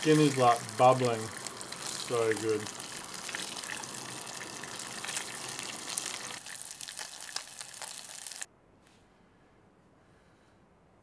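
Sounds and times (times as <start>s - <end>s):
fish skin sizzling in oil: 0.0s - 8.5s.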